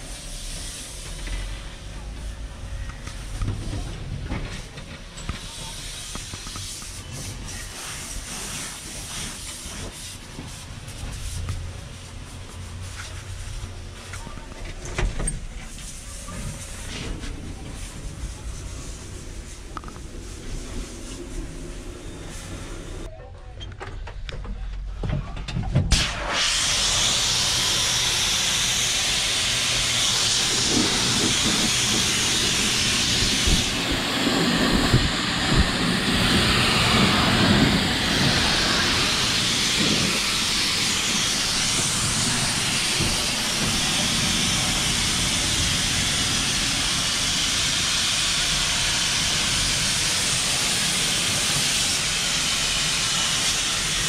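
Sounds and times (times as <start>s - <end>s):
pressure washer water jet hissing: 5.4s - 13.5s, 26.0s - 54.0s.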